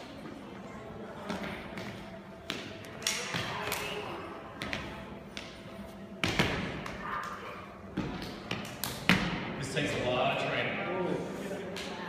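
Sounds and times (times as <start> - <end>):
footwork on hard floor: 1.2 - 9.4.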